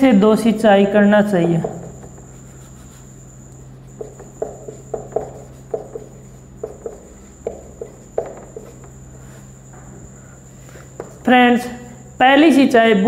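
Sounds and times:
steady low hum: 0.0 - 13.0
marker squeaking on whiteboard: 1.5 - 3.2, 3.8 - 9.4.

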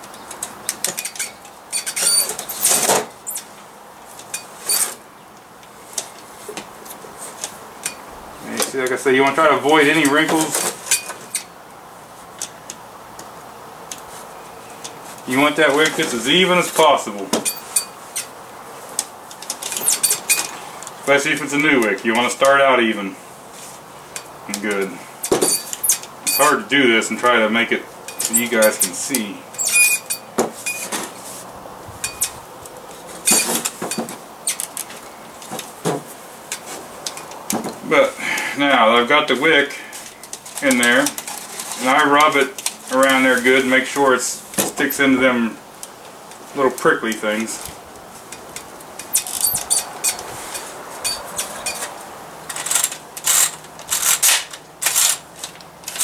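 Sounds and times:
sheet metal scraping and clinking: 0.8 - 3.6, 4.2 - 5.0, 7.4 - 8.7, 9.3 - 11.6, 17.4 - 18.3, 25.2 - 26.7, 28.0 - 31.3, 32.0 - 32.4, 33.1 - 35.7, 49.0 - 56.0.

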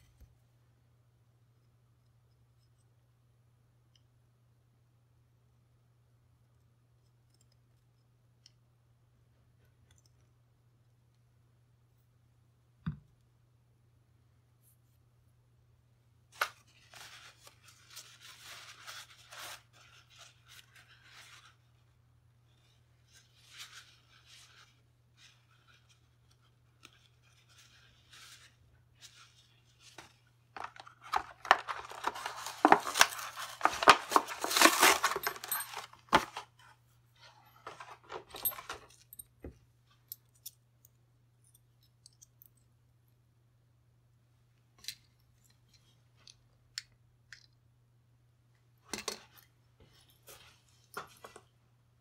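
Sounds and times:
metal parts scraping: 30.6 - 36.2.

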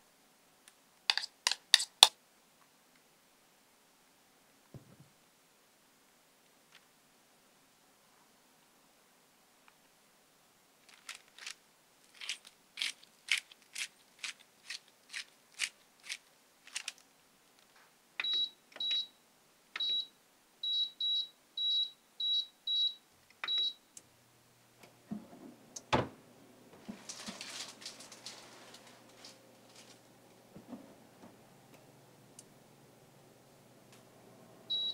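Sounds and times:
parchment paper rustling: 10.8 - 17.8, 26.8 - 31.0
air fryer fan humming: 23.5 - 34.9
oven door clunk: 25.1 - 26.2.

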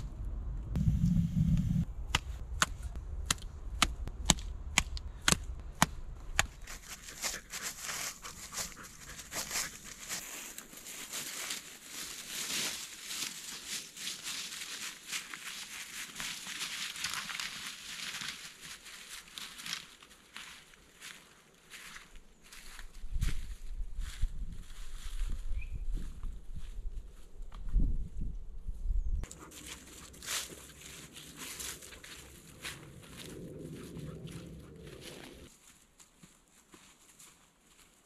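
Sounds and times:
footsteps through dry leaves: 6.5 - 27.2, 29.3 - 38.0.

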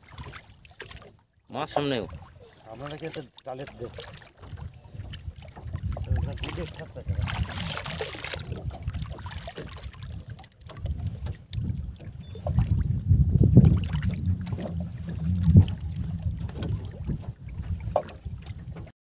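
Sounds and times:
choppy water against boat: 0.0 - 18.9
wind rumbling on microphone: 3.9 - 18.9.

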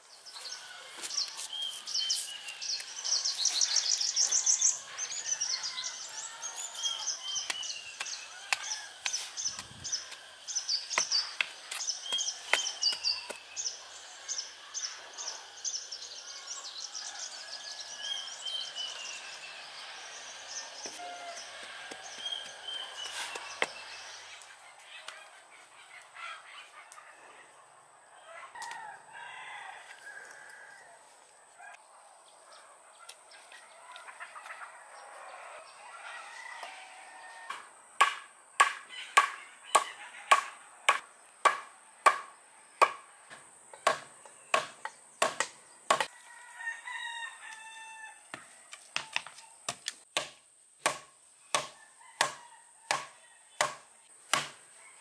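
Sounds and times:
birds calling: 0.0 - 26.8.

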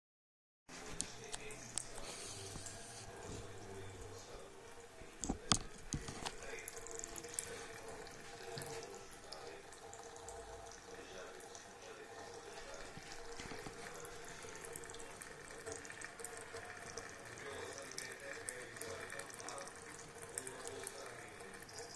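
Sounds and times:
tap running into sink: 5.1 - 9.5.

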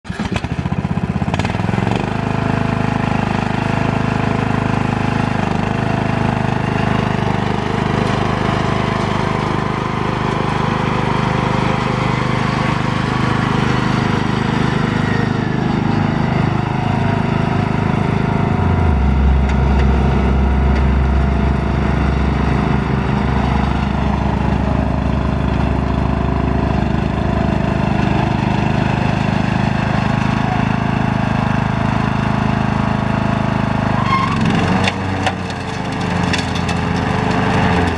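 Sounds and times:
riding lawn mower engine running: 0.1 - 37.9
deep low hum: 16.7 - 27.3.

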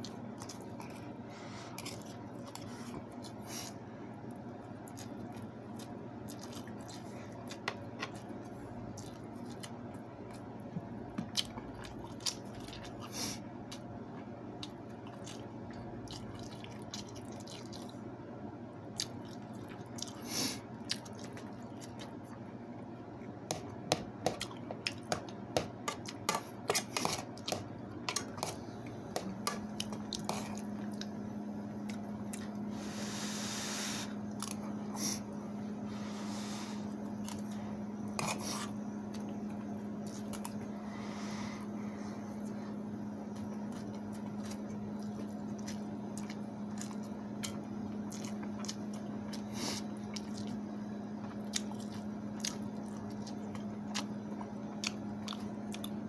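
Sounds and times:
steady low hum: 0.0 - 56.0
wet chewing: 43.4 - 56.0.

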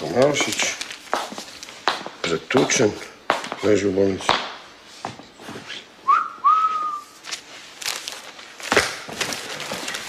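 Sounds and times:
person whistling two notes: 6.0 - 7.2.

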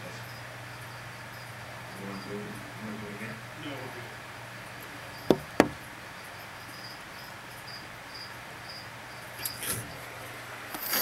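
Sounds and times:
cricket chirping: 0.0 - 2.5, 5.0 - 10.0
knocks: 5.3 - 5.8.

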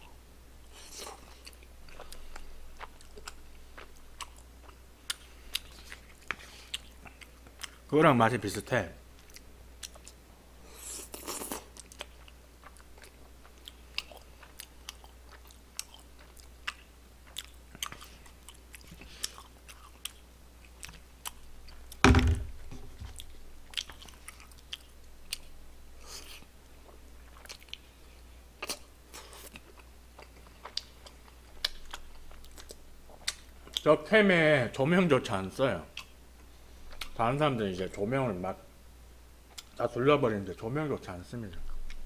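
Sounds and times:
person chewing: 0.7 - 7.9, 9.2 - 22.0, 22.9 - 33.8, 36.0 - 37.2, 39.5 - 39.8
loud thump: 22.0 - 22.9.

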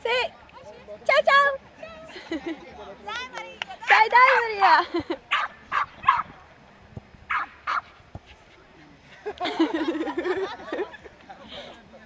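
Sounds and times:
small dog barking: 5.3 - 6.3.

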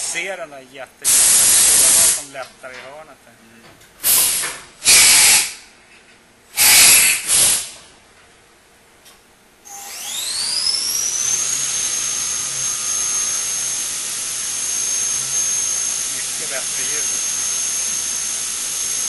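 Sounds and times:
short hissing blasts: 0.0 - 0.4, 1.0 - 2.3, 4.0 - 5.7, 6.5 - 7.8
coolant spraying hiss: 0.0 - 2.4, 4.0 - 5.6, 6.6 - 7.8
machine spindle whine: 9.7 - 19.0.

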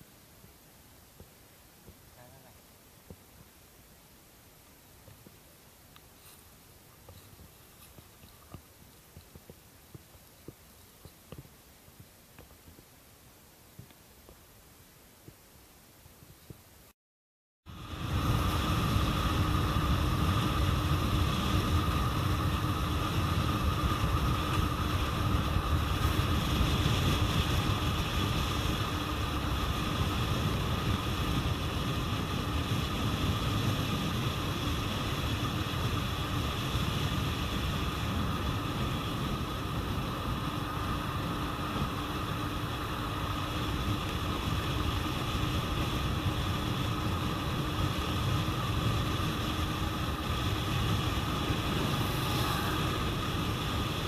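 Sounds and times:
vehicle road noise: 17.7 - 54.0
wind on microphone: 17.7 - 54.0.

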